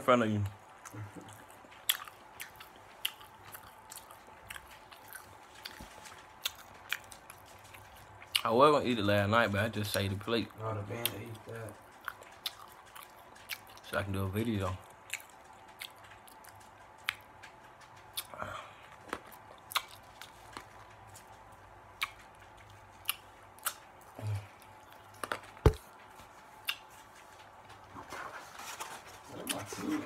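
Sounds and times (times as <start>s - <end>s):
chewing clicks: 0.8s - 8.5s, 11.0s - 13.9s, 14.8s - 25.3s.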